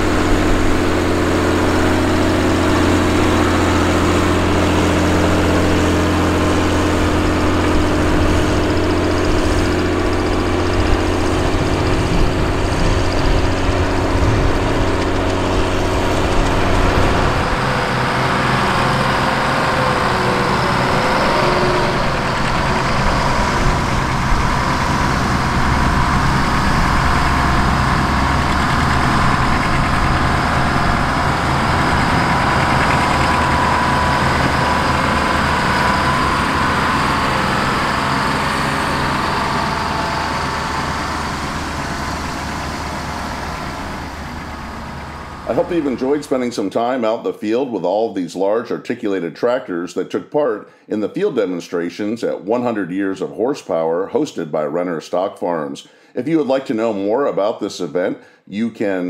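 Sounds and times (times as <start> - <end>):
tractor diesel engine under load: 0.0 - 48.2
faint wavering whine: 20.1 - 46.2.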